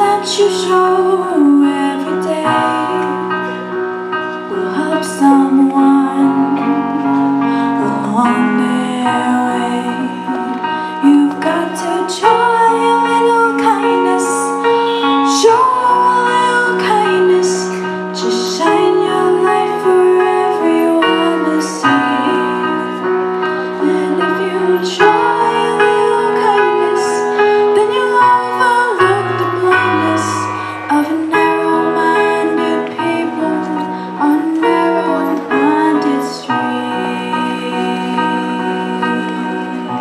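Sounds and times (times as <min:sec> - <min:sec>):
piano accompaniment: 0:00.0 - 0:40.0
woman singing long notes: 0:23.7 - 0:40.0.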